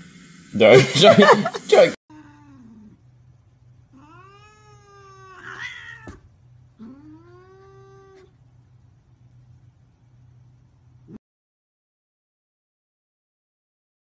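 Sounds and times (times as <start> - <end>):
cat meowing: 2.1 - 3.0, 3.9 - 8.4.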